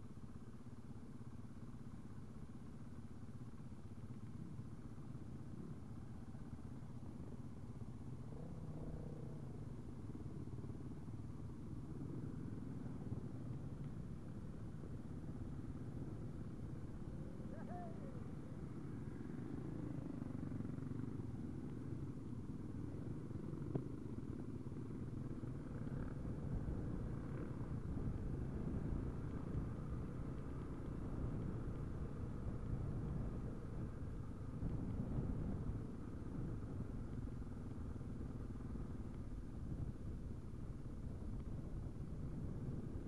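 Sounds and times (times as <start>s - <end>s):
trail bikes running at low revs: 0.0s - 43.0s.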